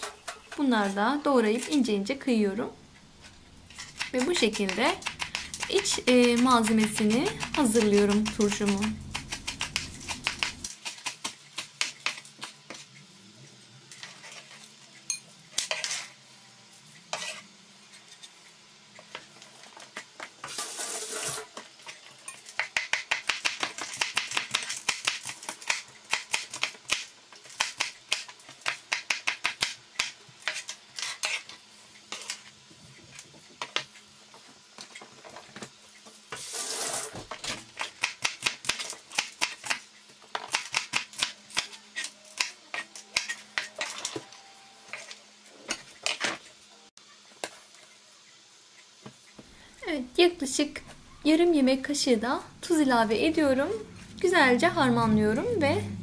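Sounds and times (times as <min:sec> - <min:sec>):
knife chopping on cutting board: 0:03.8 - 0:12.2
knife scraping board: 0:17.1 - 0:17.5.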